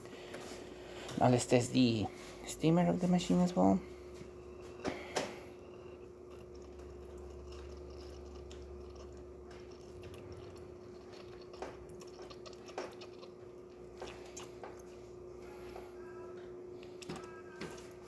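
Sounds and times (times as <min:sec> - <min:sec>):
espresso machine humming: 0:00.0 - 0:12.0.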